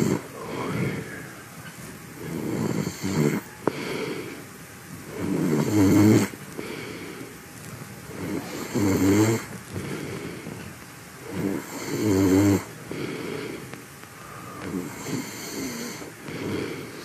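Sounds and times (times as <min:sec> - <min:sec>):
man snoring: 0:00.0 - 0:01.5, 0:02.2 - 0:04.4, 0:05.0 - 0:07.3, 0:08.1 - 0:10.6, 0:11.2 - 0:17.0
quiet breathing: 0:00.0 - 0:17.0.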